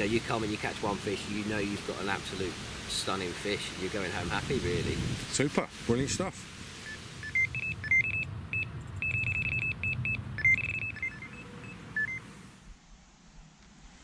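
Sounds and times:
bite alarm beeping: 6.9 - 12.3.

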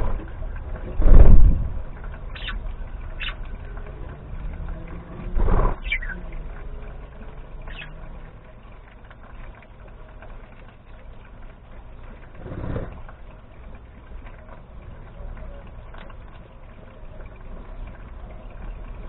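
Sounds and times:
low rumble: 0.0 - 8.9
low background hum: 0.0 - 19.0
budgerigars chirping: 2.3 - 3.4, 5.8 - 6.3, 7.6 - 8.1.

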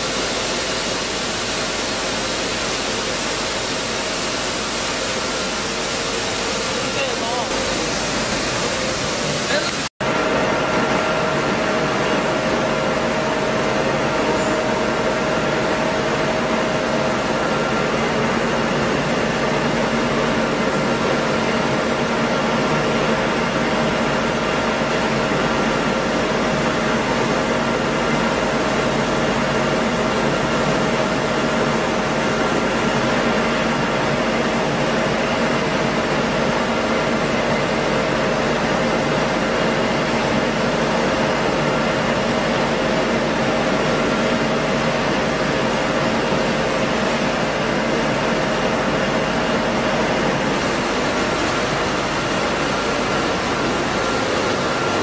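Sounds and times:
mill machine hum: 0.0 - 55.0.

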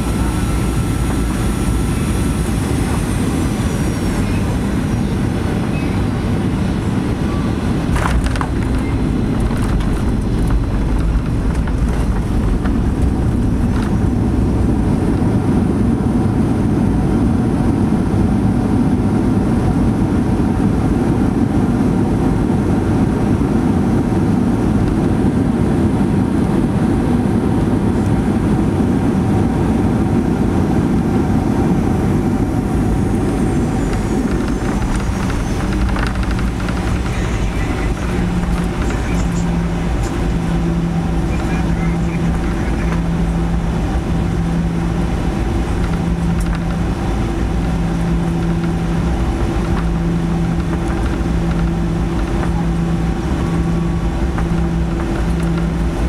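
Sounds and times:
airplane cabin engine rumble: 0.0 - 56.0.

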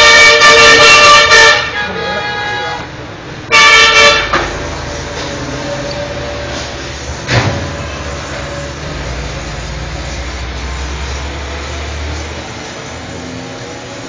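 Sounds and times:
car horn honking: 0.0 - 4.6.

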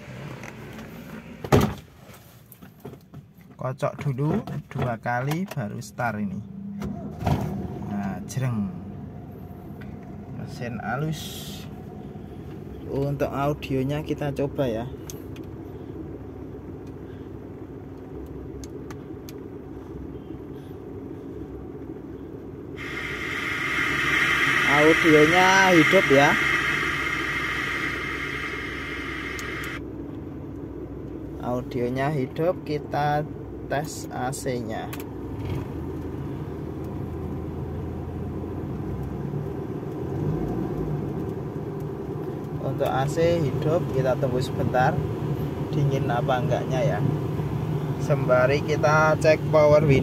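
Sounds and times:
air conditioning hum: 0.0 - 40.2, 41.2 - 50.0
car engine idling: 14.9 - 31.3
radio hiss: 22.8 - 29.8.

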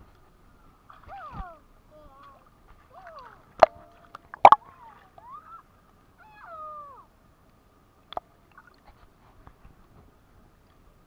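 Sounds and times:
child crying out: 4.6 - 7.1.

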